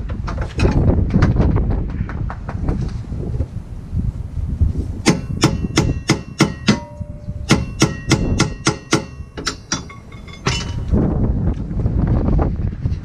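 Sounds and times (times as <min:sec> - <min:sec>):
hammer striking metal: 0:05.0 - 0:10.9.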